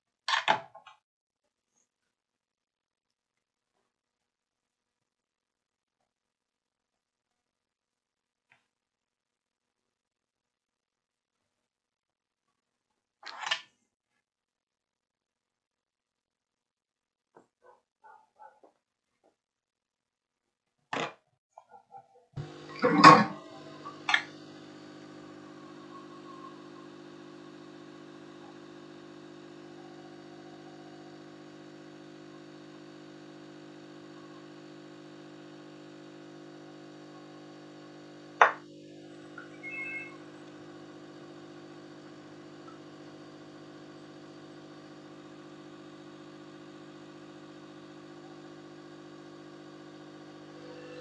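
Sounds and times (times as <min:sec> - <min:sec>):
steady low hum: 0:22.4 - 0:51.0.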